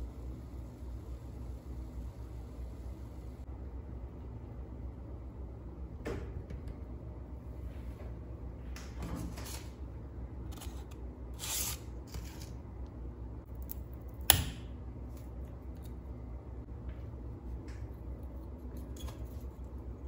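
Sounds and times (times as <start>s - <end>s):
paper sleeve rustling: 10.5s - 12.6s.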